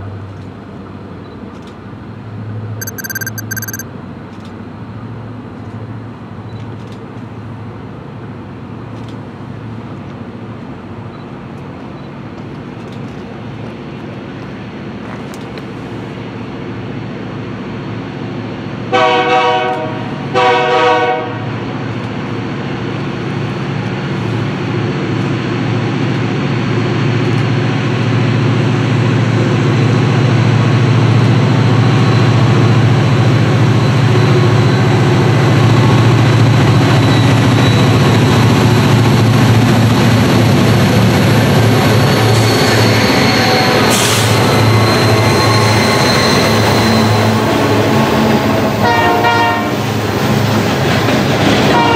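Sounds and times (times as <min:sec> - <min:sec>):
locomotive chime horn: 0:48.5 - 0:49.8.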